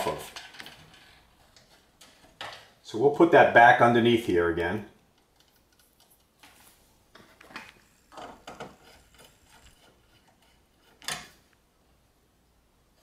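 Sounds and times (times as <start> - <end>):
wire clicking and scraping: 0.0 - 2.8, 4.6 - 11.6.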